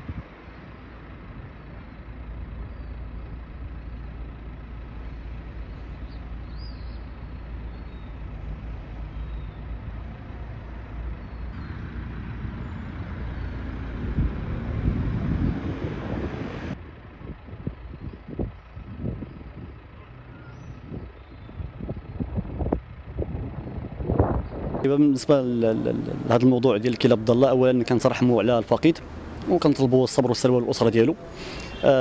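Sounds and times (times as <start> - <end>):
low traffic rumble: 0.0 - 32.0
vehicle passing close: 8.2 - 16.8, 23.4 - 32.0.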